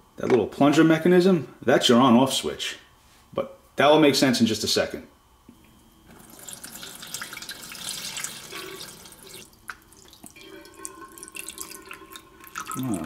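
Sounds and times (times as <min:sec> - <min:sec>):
water pouring and splashing: 0:06.1 - 0:13.0.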